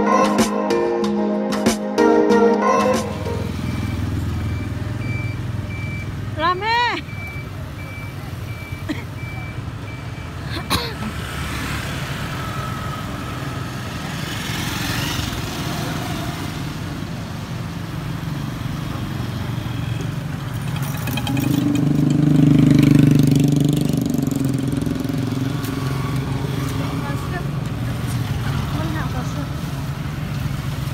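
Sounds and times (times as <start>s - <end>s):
small motorcycle engines running: 11.1s - 16.5s.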